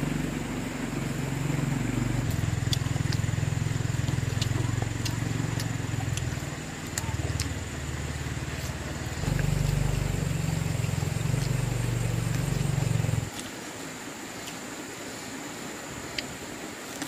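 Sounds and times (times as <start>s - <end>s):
low engine hum: 0.0s - 13.4s.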